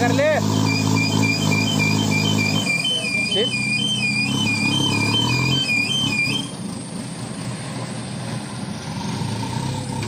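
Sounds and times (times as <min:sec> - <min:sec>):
diesel engine running: 0:00.0 - 0:10.0
warbling warning alarm: 0:00.5 - 0:06.6.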